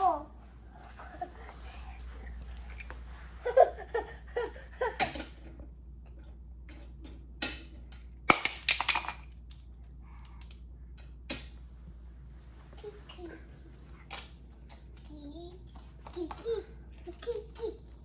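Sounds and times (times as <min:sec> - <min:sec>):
toy cars clacking: 0:06.8 - 0:09.7.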